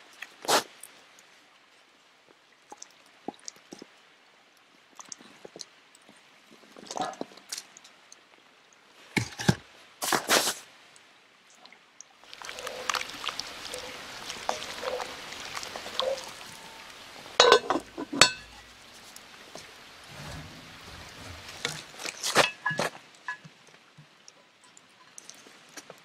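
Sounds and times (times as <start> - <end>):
wooden spoon stirring in pot: 12.2 - 23.5
knocks and splashes: 12.2 - 23.6.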